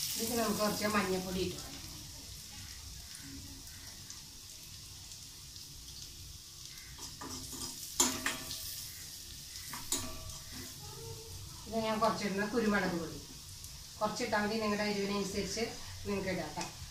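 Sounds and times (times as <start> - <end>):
food sizzling in a pan: 0.0 - 16.9
spoon clinking against pan: 7.0 - 8.7, 9.7 - 10.5.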